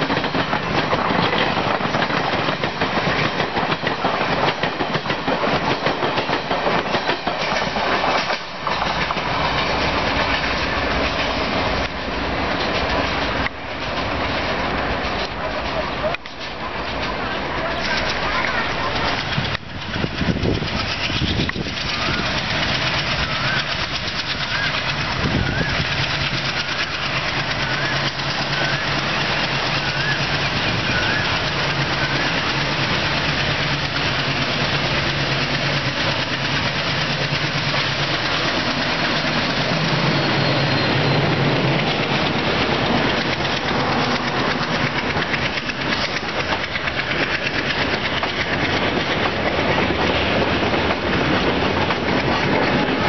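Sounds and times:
diesel locomotive engine: 0:00.0 - 0:53.0
train wheels clickety-clack: 0:00.0 - 0:53.0.

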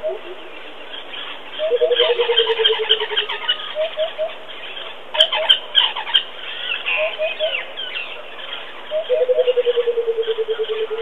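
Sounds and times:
chirps and whistles of birds: 0:00.0 - 0:11.0
bird giving low hoots: 0:01.6 - 0:04.4, 0:06.6 - 0:07.6, 0:08.9 - 0:11.0.

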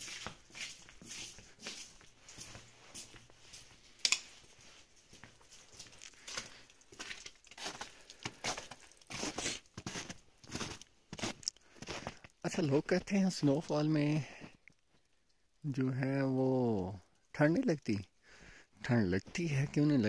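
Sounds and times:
footsteps crunching in snow: 0:00.0 - 0:13.7.

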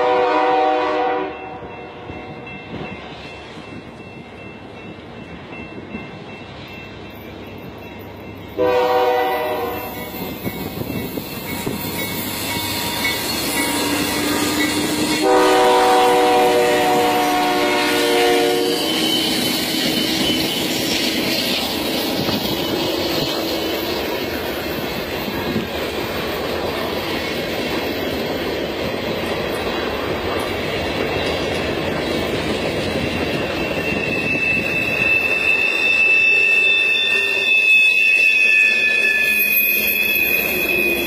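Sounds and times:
train horn blasts: 0:00.0 - 0:02.2, 0:08.6 - 0:10.2, 0:13.6 - 0:20.3
locomotive engines rumbling: 0:01.6 - 0:41.0.

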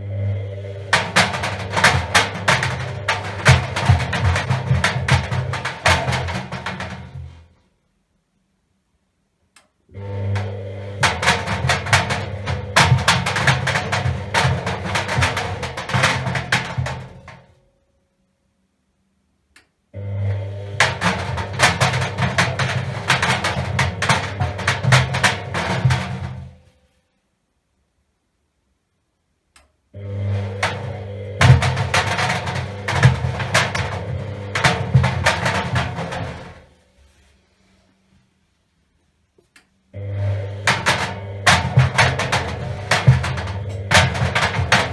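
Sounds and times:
washing machine drum motor hum: 0:00.0 - 0:07.6, 0:09.9 - 0:17.6, 0:20.0 - 0:26.8, 0:30.0 - 0:37.2, 0:39.9 - 0:44.9
balls knocking against metal drum: 0:00.2 - 0:07.6, 0:10.0 - 0:17.6, 0:20.5 - 0:26.7, 0:30.0 - 0:36.8, 0:40.0 - 0:44.9.

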